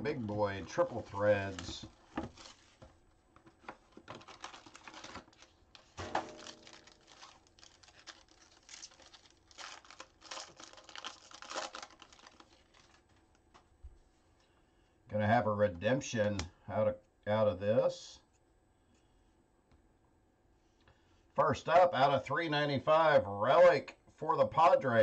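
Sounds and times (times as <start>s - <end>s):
foil wrapper crinkling: 0.0s - 13.6s.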